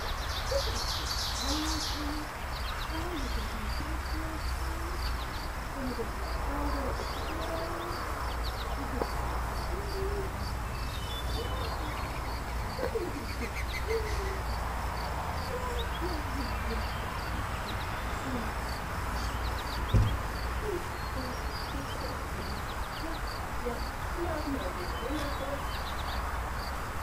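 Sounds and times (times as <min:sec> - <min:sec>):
thump: 0:19.9 - 0:20.3.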